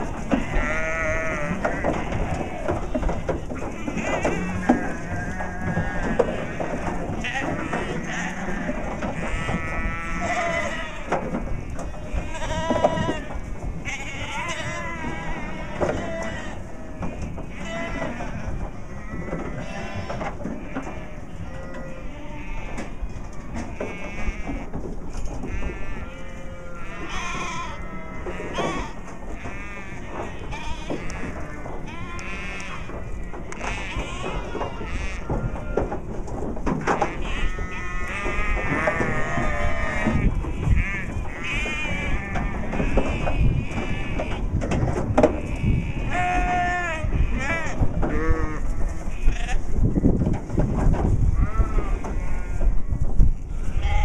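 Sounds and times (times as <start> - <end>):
sheep bleating: 0.0 - 24.8, 25.4 - 35.9, 36.9 - 44.4, 45.3 - 49.7, 53.6 - 54.0.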